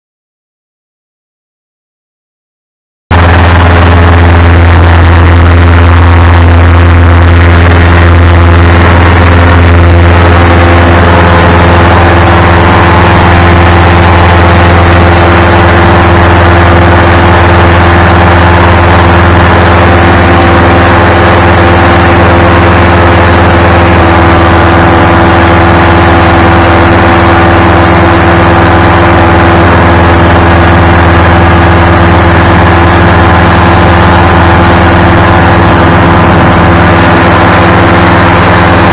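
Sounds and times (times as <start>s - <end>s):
paramotor engine droning: 3.1s - 38.9s.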